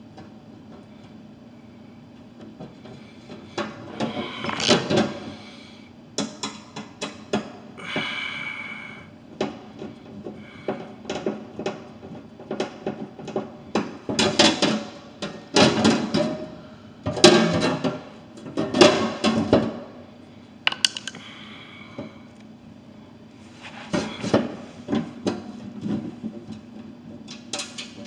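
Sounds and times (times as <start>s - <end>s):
metal taps and knocks: 20.7s - 21.2s.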